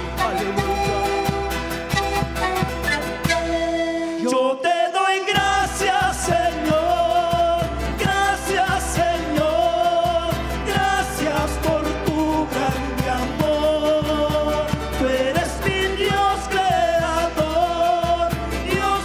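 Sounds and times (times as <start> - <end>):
man singing: 0.0 - 1.6, 4.0 - 19.0
panpipes: 0.0 - 4.6.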